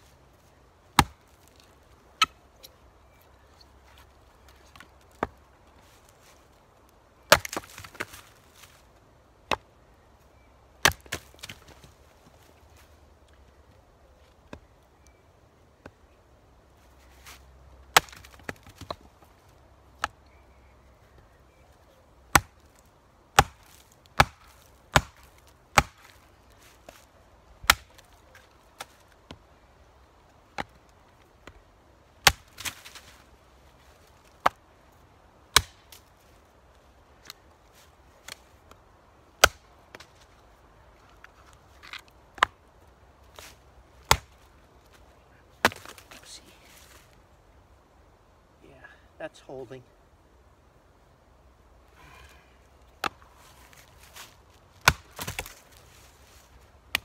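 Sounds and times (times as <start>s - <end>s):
hatchet chopping wood: 1.0s - 1.2s, 7.3s - 8.2s, 10.8s - 11.7s, 17.9s - 19.0s, 22.3s - 22.6s, 23.4s - 26.2s, 27.6s - 28.0s, 32.2s - 32.8s, 35.5s - 35.9s, 39.4s - 40.1s, 44.0s - 44.4s, 45.6s - 46.0s, 54.8s - 55.5s.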